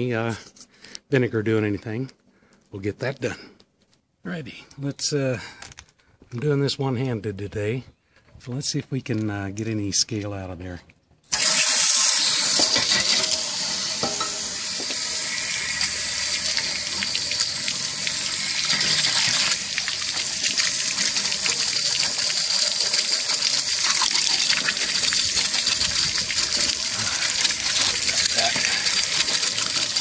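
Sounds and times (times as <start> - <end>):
water gushing from a drain: 11.3 - 30.0
water spraying inside a tank: 11.3 - 30.0.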